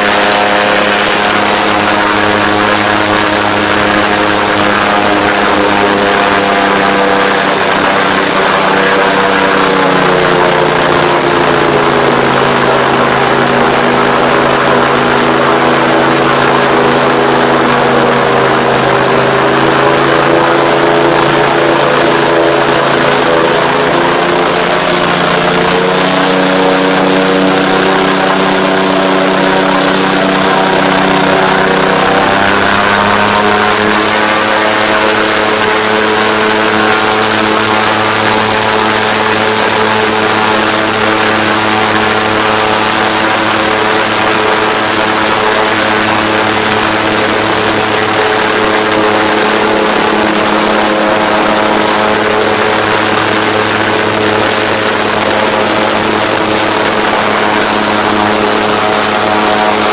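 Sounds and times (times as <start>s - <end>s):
airboat engine and propeller drone: 0.0s - 59.9s.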